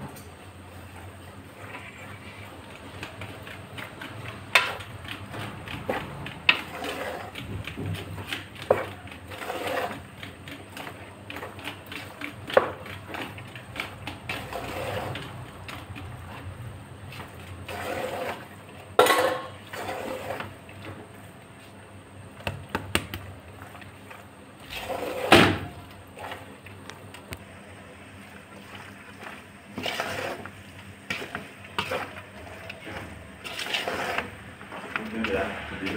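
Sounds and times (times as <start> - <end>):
spoon scraping a metal pot: 5.7 - 7.4, 8.2 - 10.1, 14.2 - 15.4, 29.8 - 35.0.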